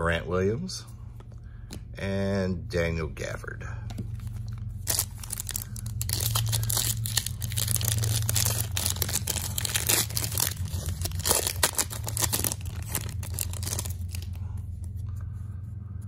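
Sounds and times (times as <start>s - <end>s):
foil wrapper tearing and crinkling: 4.8s - 14.4s.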